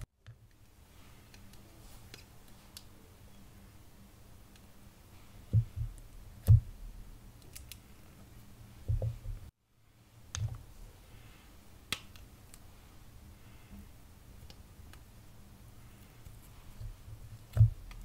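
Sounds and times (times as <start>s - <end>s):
soft thumps: 8.9s - 9.4s.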